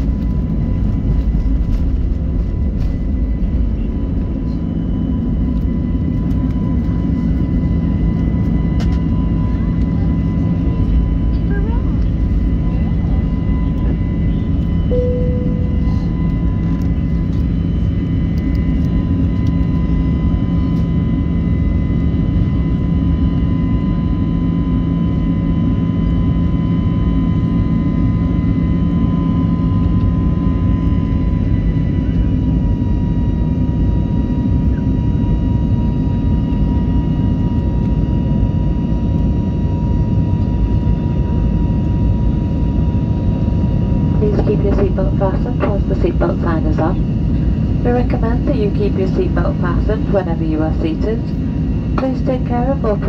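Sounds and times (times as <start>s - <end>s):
constant engine whine: 0.0s - 53.0s
jet engine cabin noise: 0.0s - 53.0s
brief cabin tone: 13.4s - 18.0s.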